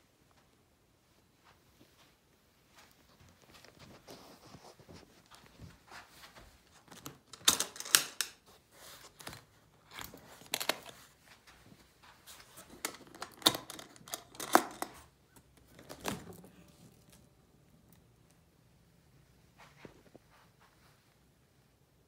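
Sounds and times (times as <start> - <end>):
case latches clicking open: 12.8 - 14.9.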